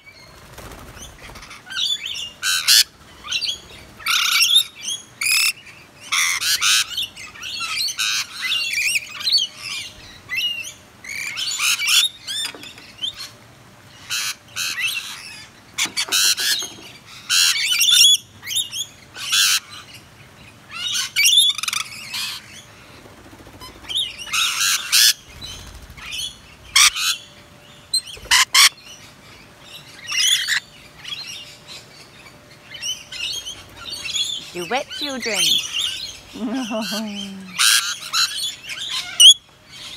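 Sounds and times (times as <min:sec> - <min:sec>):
parrots screeching and chattering: 0:01.2 - 0:12.5, 0:14.0 - 0:19.9, 0:23.6 - 0:27.3, 0:28.0 - 0:28.8, 0:30.0 - 0:31.3, 0:32.7 - 0:39.9.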